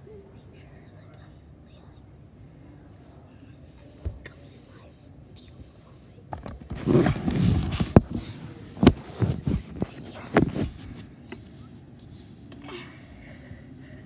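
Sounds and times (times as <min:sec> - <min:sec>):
phone handling rustling: 0:07.5 - 0:11.1.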